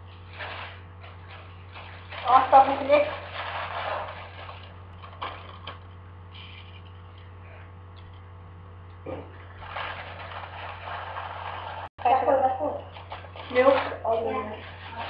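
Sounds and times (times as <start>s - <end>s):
plastic bag crinkling: 0.2s - 5.8s, 9.4s - 11.9s, 12.8s - 15.0s.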